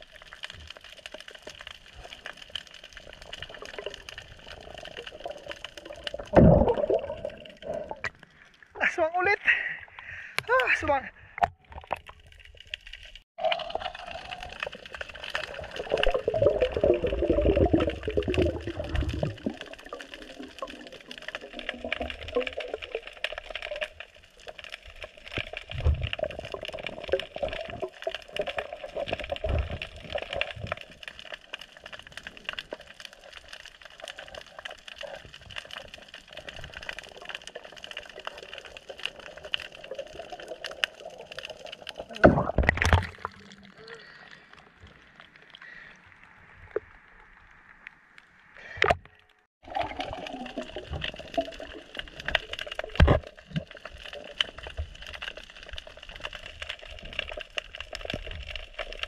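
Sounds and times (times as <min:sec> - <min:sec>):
crackle of tiny clicks: 0:00.0 - 0:08.7, 0:11.4 - 0:59.0
underwater moving water: 0:00.0 - 0:59.0
low rushes of water: 0:01.3 - 0:08.9, 0:13.4 - 0:31.1, 0:49.6 - 0:59.0.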